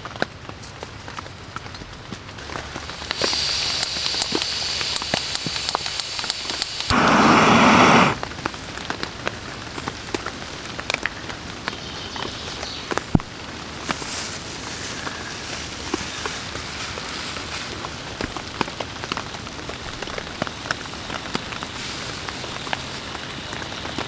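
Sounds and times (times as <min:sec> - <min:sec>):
gas hissing from stove valve: 0:03.0 - 0:08.2
burner lighting whoosh: 0:03.1 - 0:08.3
small taps and clicks: 0:03.8 - 0:06.9.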